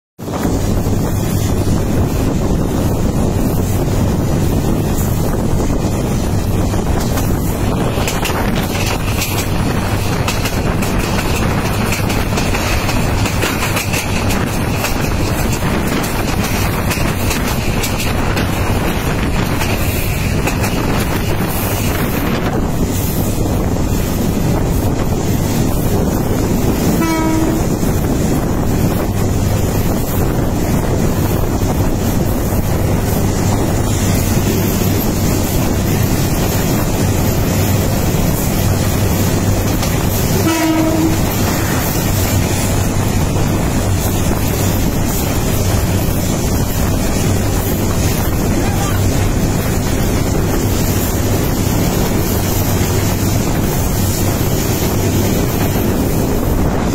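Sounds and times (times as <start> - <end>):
train rolling rumble on rails: 0.2 - 56.9
train horn: 26.8 - 28.1, 40.1 - 42.7.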